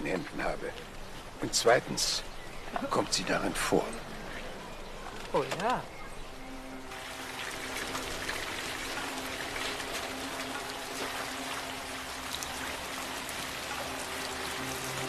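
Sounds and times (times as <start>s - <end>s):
soft background music: 0.0s - 15.0s
fountain water splashing: 6.9s - 15.0s.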